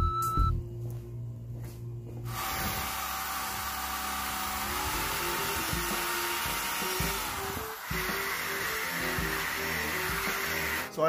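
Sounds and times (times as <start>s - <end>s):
background music: 0.0s - 11.0s
cordless drill whining: 2.3s - 10.9s.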